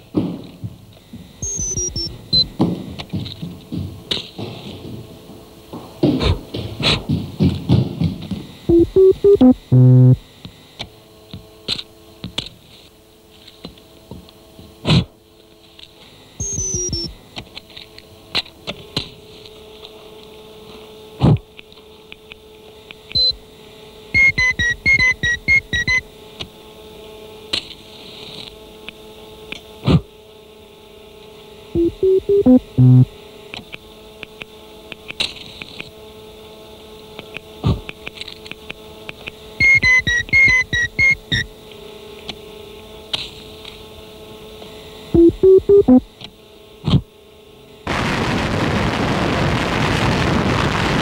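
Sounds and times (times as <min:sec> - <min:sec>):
electrical hum and hiss: 0:00.0 - 0:51.0
electronic beeps: 0:01.4 - 0:02.5, 0:08.7 - 0:10.2, 0:16.4 - 0:17.1, 0:24.2 - 0:26.0, 0:31.8 - 0:33.1, 0:39.6 - 0:41.5, 0:45.2 - 0:46.0
synthesizer hum-like tone: 0:08.7 - 0:10.2, 0:31.8 - 0:33.2, 0:45.2 - 0:46.1.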